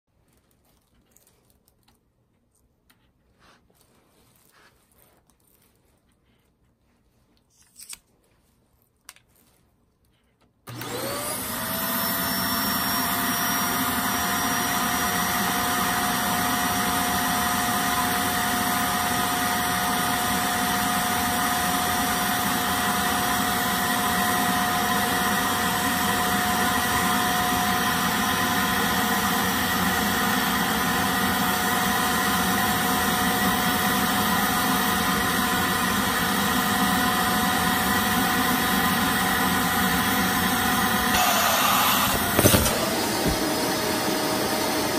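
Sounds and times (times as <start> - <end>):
vacuum cleaner motor whine: 10.7 - 44.9.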